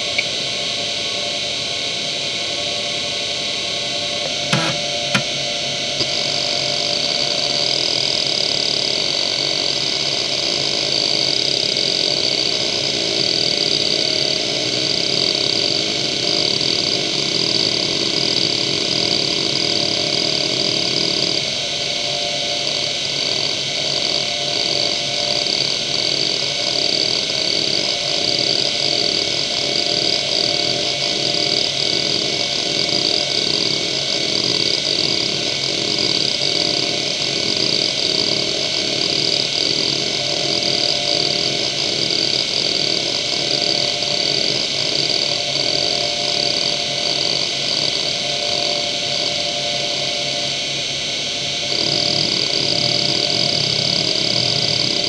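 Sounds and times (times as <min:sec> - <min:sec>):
hard drive spindle whine: 0:00.0 - 0:55.0
hard drive head seeking: 0:04.2 - 0:05.4.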